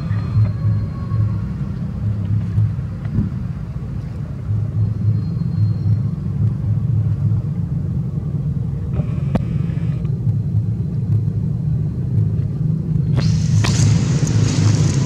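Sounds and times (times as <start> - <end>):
low rumble: 0.0 - 15.0
hiss: 13.2 - 15.0.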